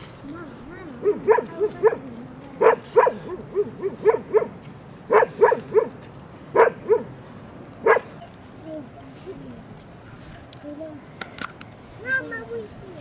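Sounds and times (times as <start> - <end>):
dog barking: 1.0 - 2.0, 2.6 - 7.1, 7.8 - 8.1.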